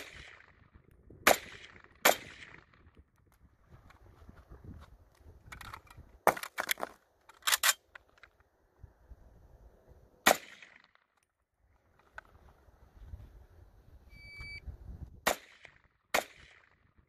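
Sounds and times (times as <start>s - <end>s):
rifle shot with echo: 0.0s - 0.6s, 1.2s - 2.9s, 10.2s - 10.9s, 15.2s - 16.9s
metallic rifle reload clicks: 5.4s - 8.3s.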